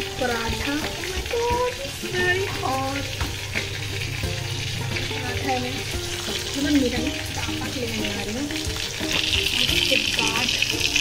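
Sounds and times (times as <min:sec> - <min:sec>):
background music gliding melody: 0:00.0 - 0:11.0
flatbread sizzling on hot iron: 0:00.0 - 0:11.0.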